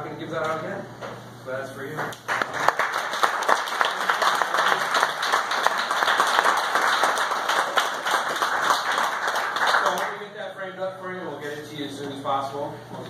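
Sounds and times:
people applauding: 2.0s - 10.4s.

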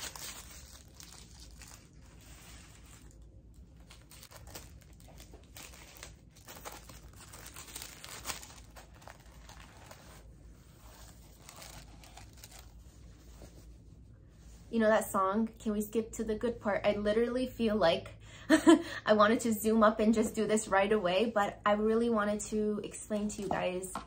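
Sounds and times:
tissue paper rustling and crinkling: 0.0s - 14.7s.

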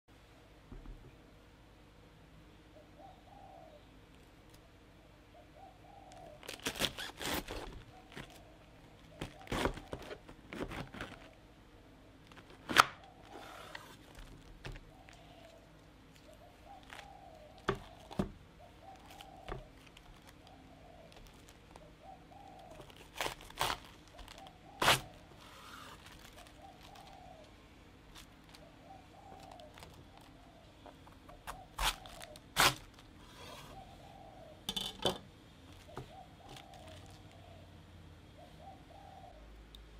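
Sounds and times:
bird calling: 2.7s - 4.0s, 4.6s - 34.7s, 35.6s - 39.6s
knife cutting cabbage: 6.6s - 8.3s, 9.2s - 11.3s, 22.7s - 26.0s, 31.5s - 33.0s.

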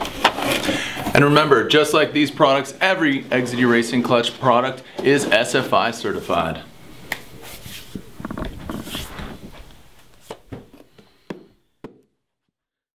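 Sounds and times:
handling rustling: 6.2s - 11.2s.

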